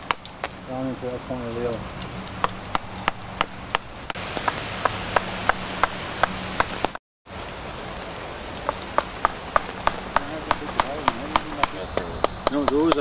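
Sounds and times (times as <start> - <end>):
mallet striking chisel: 9.0 - 13.0.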